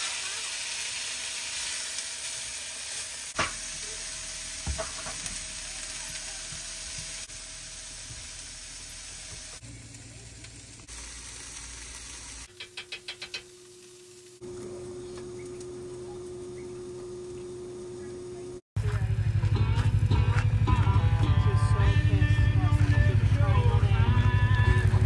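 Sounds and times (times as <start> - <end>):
food sizzling in a pan: 0.0 - 18.6
steady hum with held tone: 11.8 - 18.6.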